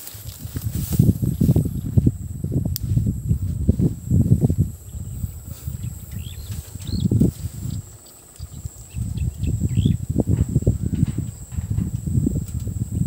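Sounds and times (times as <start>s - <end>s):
wind buffeting microphone: 0.0s - 13.0s
bird chirps: 4.9s - 10.0s.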